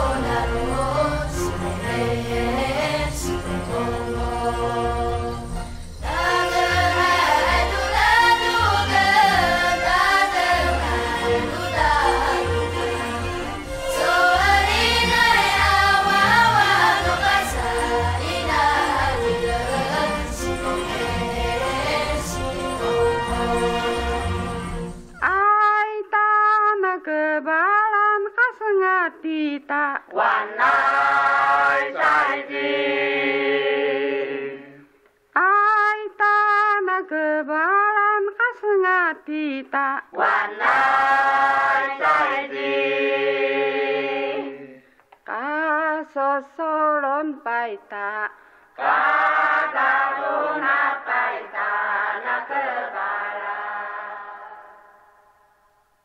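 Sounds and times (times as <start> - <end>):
chant-like singing: 0.0 - 5.3, 6.0 - 13.3, 13.9 - 24.6, 30.0 - 34.9, 40.1 - 46.0, 48.8 - 55.0
several voices singing: 0.0 - 24.9, 30.1 - 34.9, 40.1 - 44.9, 48.8 - 55.1.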